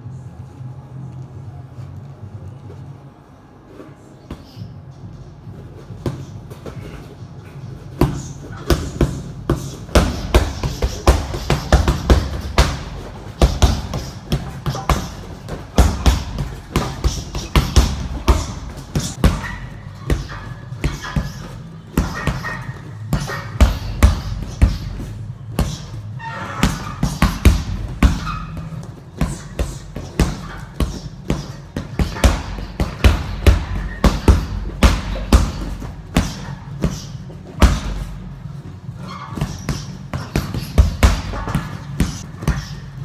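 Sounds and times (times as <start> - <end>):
gloved punches on heavy bag: 8.0 - 26.0, 26.6 - 28.6, 29.2 - 38.2, 39.4 - 42.8.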